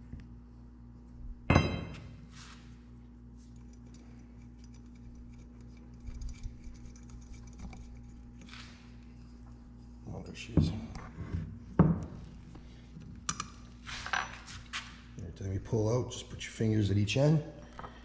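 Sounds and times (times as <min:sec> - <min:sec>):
low steady hum: 0:00.0 - 0:18.0
metal parts clicking and rustling: 0:03.5 - 0:08.6.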